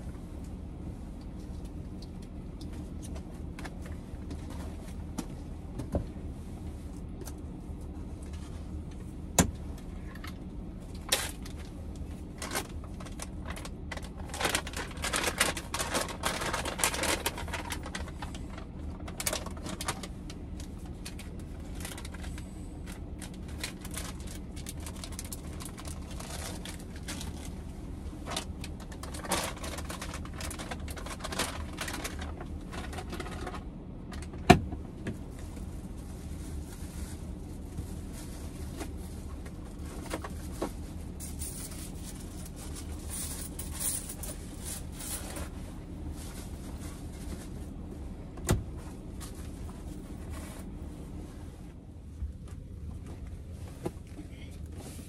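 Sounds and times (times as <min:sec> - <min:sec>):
steady low hum: 0:00.0 - 0:55.0
plastic bags rustling: 0:11.1 - 0:33.6, 0:35.4 - 0:48.0.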